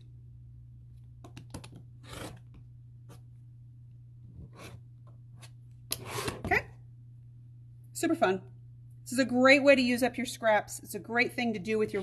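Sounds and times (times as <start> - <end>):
steady low hum: 0.0 - 12.0
rotary cutter scraping fabric: 2.0 - 2.4.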